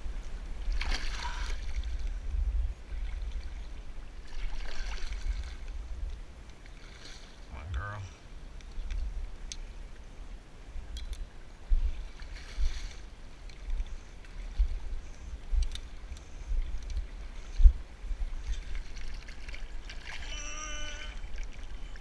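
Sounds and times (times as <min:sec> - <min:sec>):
faint clicks: 0:15.6 - 0:17.0
wind thumps on microphone: 0:16.5 - 0:18.7.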